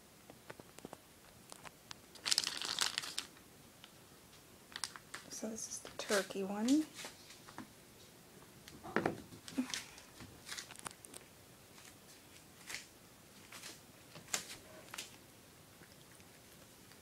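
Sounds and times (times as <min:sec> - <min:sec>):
cats lapping wet food: 0:14.9 - 0:17.0.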